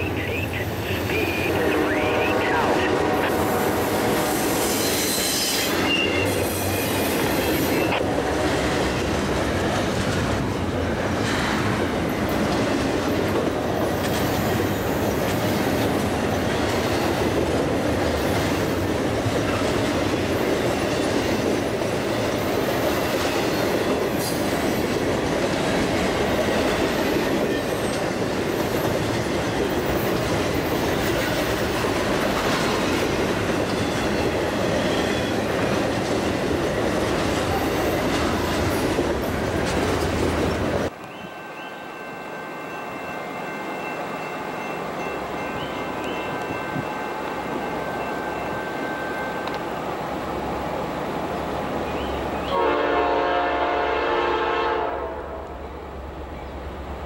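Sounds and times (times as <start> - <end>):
freight train wheels clattering: 2.9 - 40.9.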